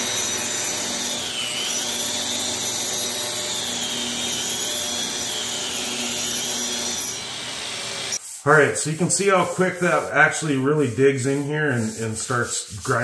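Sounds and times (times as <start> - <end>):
angle grinder grinding concrete: 0.0 - 8.2.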